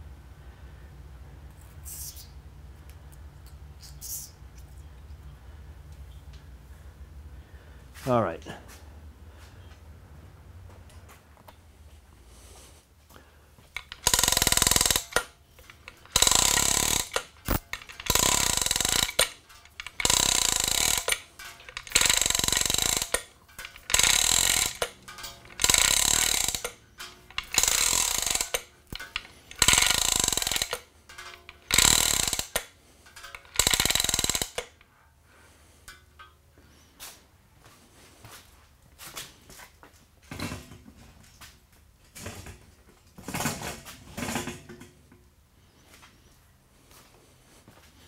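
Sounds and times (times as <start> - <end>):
faint knocks and clinks: 13.7 - 35.0, 35.8 - 36.9
chain rattling through hoist: 13.8 - 34.8.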